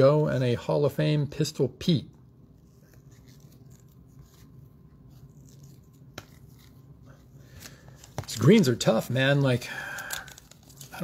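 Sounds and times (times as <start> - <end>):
trading cards rustling and scraping: 2.5 - 11.0.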